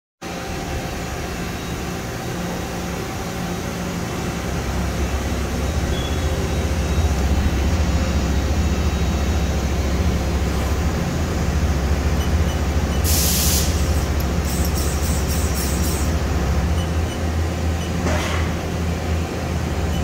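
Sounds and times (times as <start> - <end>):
machine mechanical hum: 0.2 - 20.0
coolant spraying hiss: 13.0 - 16.2.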